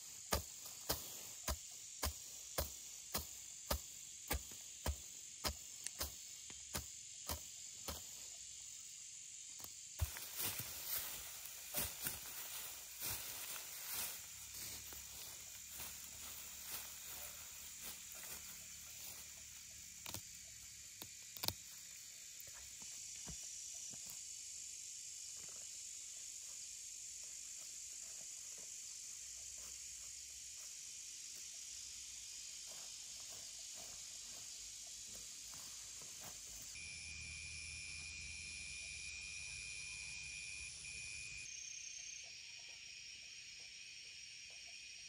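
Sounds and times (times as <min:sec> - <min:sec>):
insects hissing: 0:00.0 - 0:45.0
grass rustling and stems snapping: 0:09.6 - 0:16.9, 0:19.9 - 0:21.8.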